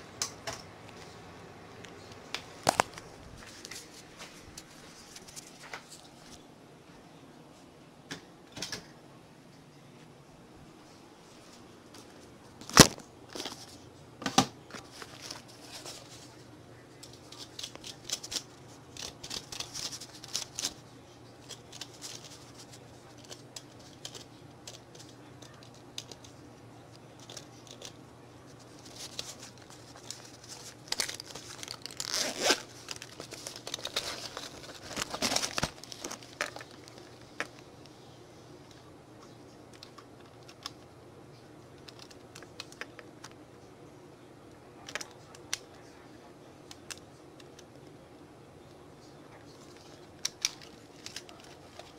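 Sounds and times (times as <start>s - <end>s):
rustling and crinkling: 0.2s - 6.4s, 10.8s - 14.0s, 14.6s - 40.9s, 49.0s - 51.9s.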